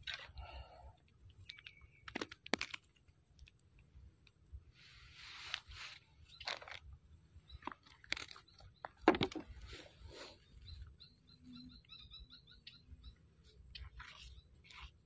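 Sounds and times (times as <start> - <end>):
bird chirping: 1.4 - 2.1, 6.1 - 15.0
handling knocks and rustles: 7.6 - 9.9.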